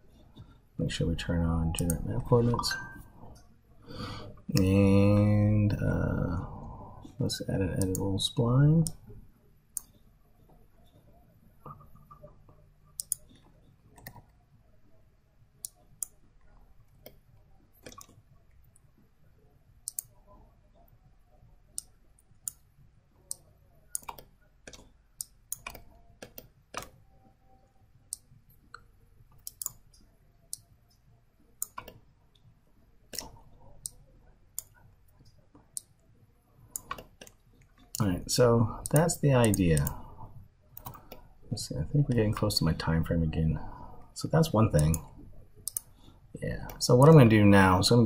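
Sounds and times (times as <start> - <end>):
faint low hum: 0.0 - 48.0
keyboard clicks: 1.7 - 3.4, 7.7 - 8.1, 13.0 - 14.3, 17.8 - 18.2, 19.8 - 20.2, 23.3 - 27.0, 28.1 - 30.6, 31.6 - 32.0, 36.7 - 38.1, 38.8 - 40.0, 40.8 - 41.2, 44.8 - 45.9
computer mouse clicks: 7.7 - 8.1, 13.0 - 14.4, 17.8 - 18.8, 19.8 - 20.2, 23.3 - 27.0, 28.1 - 31.0, 31.6 - 32.5, 33.1 - 36.0, 36.7 - 38.1, 38.8 - 40.0, 40.8 - 41.3, 44.8 - 45.0, 45.6 - 45.9.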